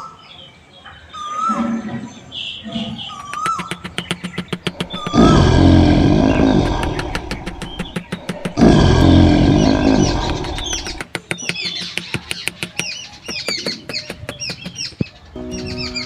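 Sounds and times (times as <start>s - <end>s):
birds chirping: 0.0s - 16.0s
fast steady clicking: 3.2s - 15.1s
lion roaring: 4.5s - 11.1s.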